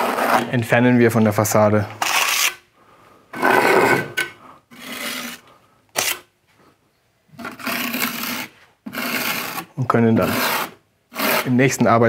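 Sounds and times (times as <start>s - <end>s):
spatula scraping mortar off wall: 0.0s - 0.5s, 2.0s - 2.6s, 3.4s - 5.4s, 6.0s - 6.3s, 7.4s - 11.8s.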